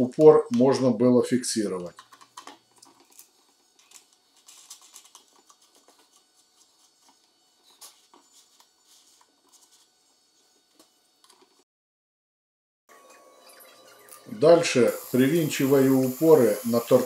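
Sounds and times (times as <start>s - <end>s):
faint clicks and taps of parts: 1.8s - 3.1s.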